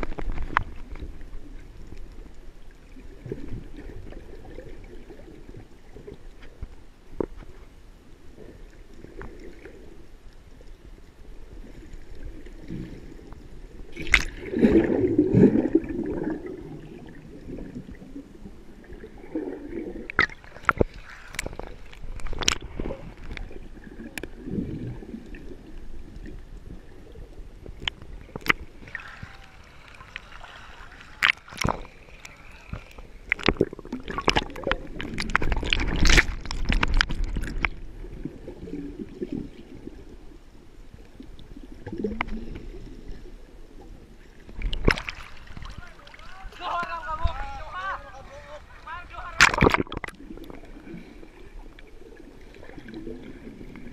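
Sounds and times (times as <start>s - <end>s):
sea water sloshing and gurgling: 0.0s - 53.9s
sharp splashes: 49.3s - 50.2s.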